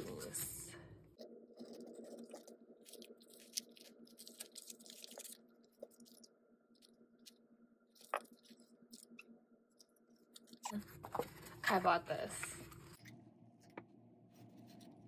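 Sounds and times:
packaging crinkling and rustling: 0:01.6 - 0:06.3.

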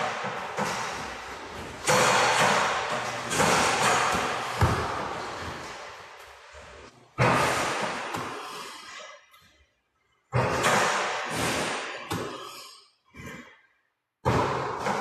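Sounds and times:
basketball thuds: 0:00.0 - 0:06.3
ball hitting hoop and net: 0:00.0 - 0:08.6, 0:14.2 - 0:15.0.

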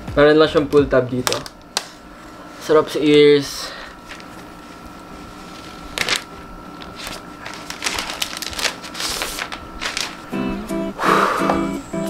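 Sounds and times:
plastic film crackling as peeled: 0:04.0 - 0:10.4.

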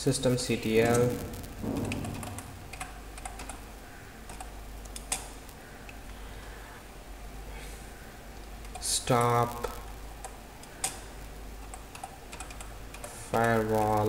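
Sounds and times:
faint low hum: 0:00.0 - 0:14.0
keyboard keys clicking: 0:00.9 - 0:03.7, 0:04.3 - 0:05.3, 0:11.6 - 0:13.6.

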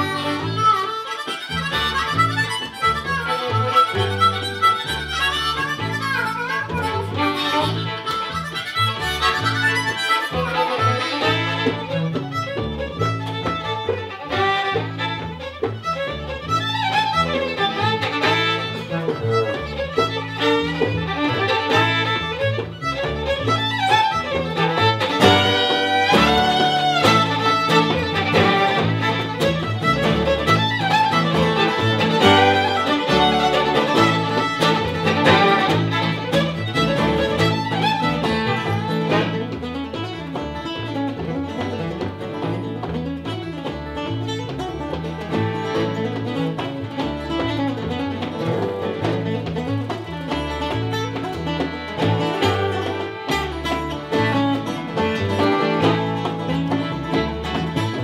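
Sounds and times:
acoustic guitar: 0:00.0 - 0:58.0
double bass: 0:00.0 - 0:58.0
fiddle playing fast tune: 0:00.0 - 0:58.0.

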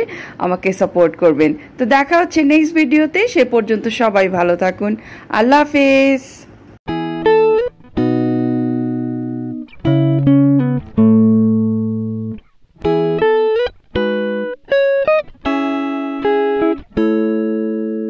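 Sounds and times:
plucked string music: 0:06.9 - 0:18.0.

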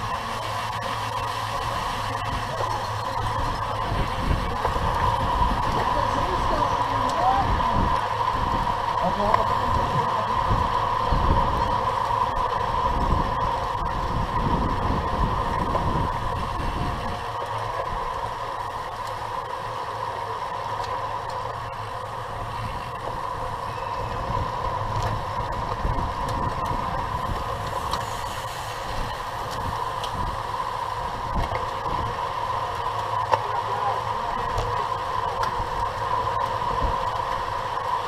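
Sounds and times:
steady hum: 0:00.0 - 0:38.0
wind buffeting: 0:01.1 - 0:18.9, 0:21.5 - 0:33.1.

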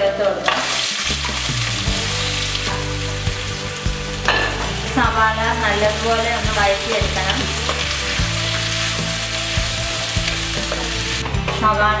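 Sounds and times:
onions sizzling in hot oil: 0:00.4 - 0:11.2
utensils knocking: 0:04.2 - 0:08.4.

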